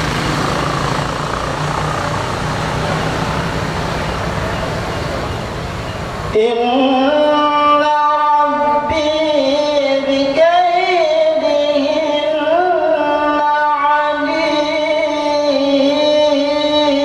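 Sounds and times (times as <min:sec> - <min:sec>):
man chanting melodically: 0:06.3 - 0:17.0.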